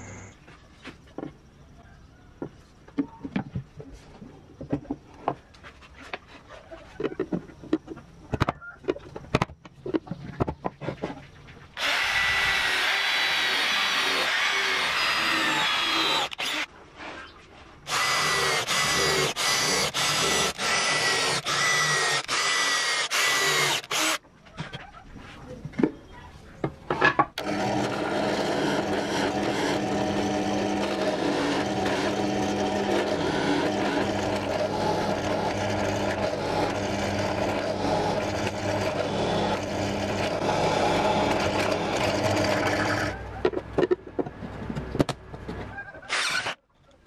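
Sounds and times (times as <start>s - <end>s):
cordless drill running: 11.8s - 16.7s, 17.9s - 24.2s, 27.4s - 43.1s, 46.1s - 46.6s.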